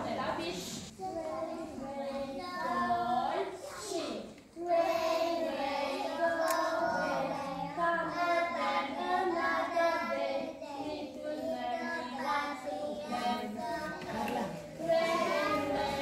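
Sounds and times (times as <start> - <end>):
children singing: 4.6 - 16.0.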